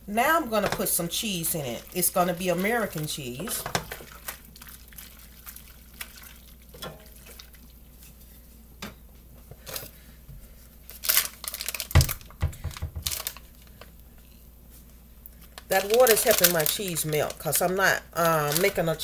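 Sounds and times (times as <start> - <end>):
plastic crinkling and tearing: 10.9 - 13.9, 15.4 - 19.0.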